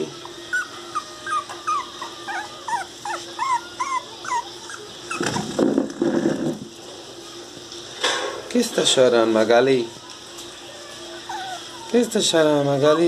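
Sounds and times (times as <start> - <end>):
puppy whimpering: 0.0 - 5.8, 9.8 - 13.0.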